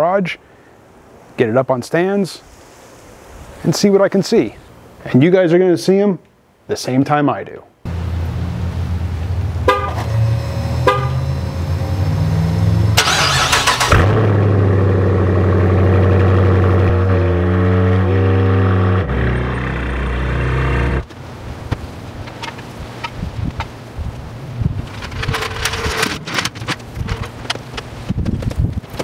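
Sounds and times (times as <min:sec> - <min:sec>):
car engine starting and running: 0:07.9 - 0:21.1
car horn chirps: 0:09.6 - 0:11.7.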